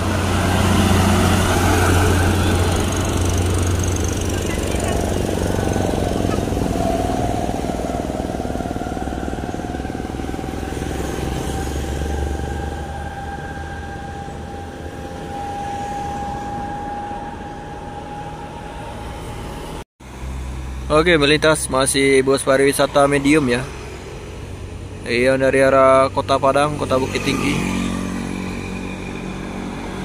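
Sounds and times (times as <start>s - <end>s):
steady whine: 0.0s - 19.8s
truck engine pulling away: 0.0s - 26.5s
motorcycles passing: 0.0s - 30.0s.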